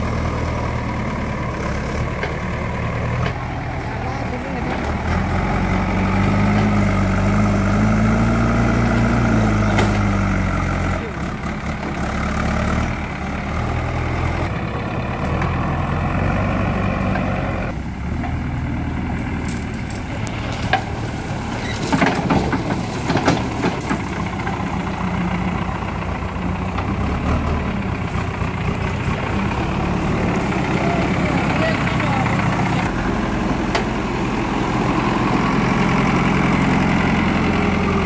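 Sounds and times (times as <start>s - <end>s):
diesel engine running: 0.0s - 38.0s
sharp cracks and knocks: 9.0s - 10.2s, 19.1s - 24.7s.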